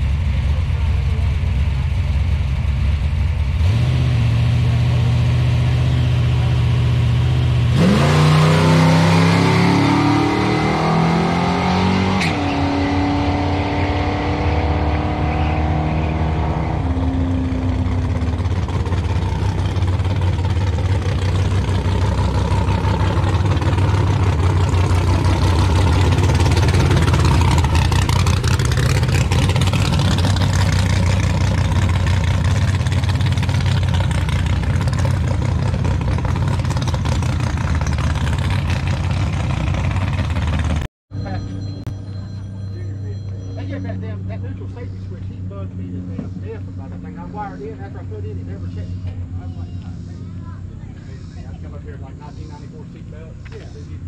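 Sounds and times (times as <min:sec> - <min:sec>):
engine idling: 0:00.0 - 0:03.8, 0:17.3 - 0:54.0
pickup engine revving: 0:00.0 - 0:54.0.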